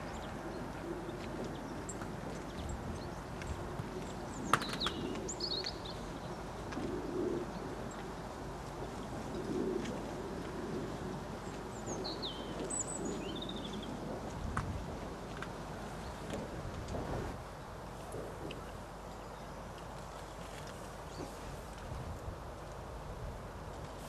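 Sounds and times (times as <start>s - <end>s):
birds chirping: 0.0s - 14.4s
low bird coos: 0.0s - 17.4s.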